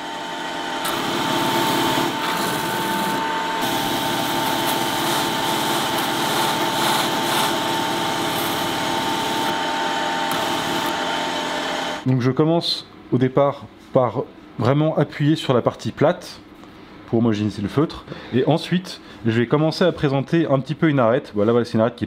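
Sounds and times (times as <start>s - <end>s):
high motor whine: 0.0s - 12.1s
steel bar rasping on polishing wheel: 1.5s - 9.6s.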